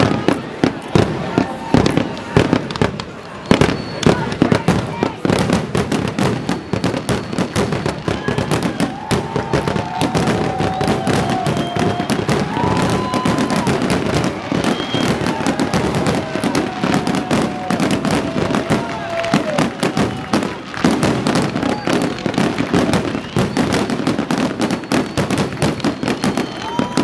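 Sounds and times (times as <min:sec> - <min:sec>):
fireworks bangs and crackling: 0:00.0 - 0:27.0.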